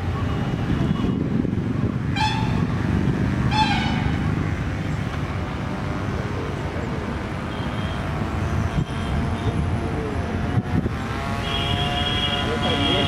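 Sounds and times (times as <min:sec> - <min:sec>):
small two-stroke engine running: 0:10.3 - 0:13.0.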